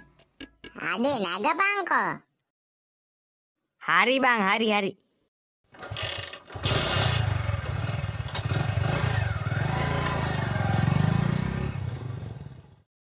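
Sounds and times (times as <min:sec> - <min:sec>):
motorcycle engine running: 0:05.9 - 0:12.8.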